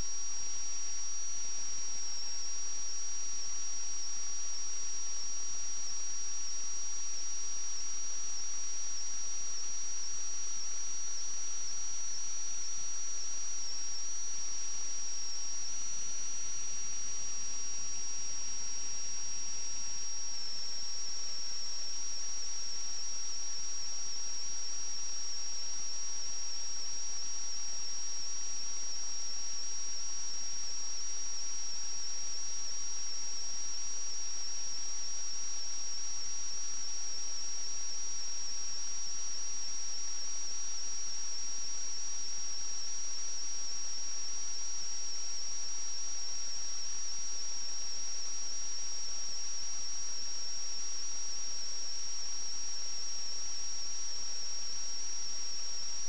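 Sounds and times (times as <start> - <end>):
constant hiss: 0.0 - 56.0.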